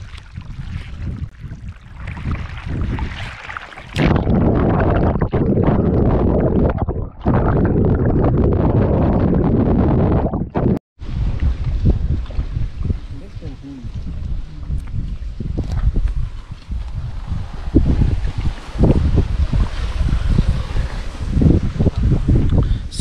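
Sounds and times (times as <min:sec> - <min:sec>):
water sloshing: 0:00.0 - 0:08.4
underwater rushing noise: 0:00.0 - 0:22.6.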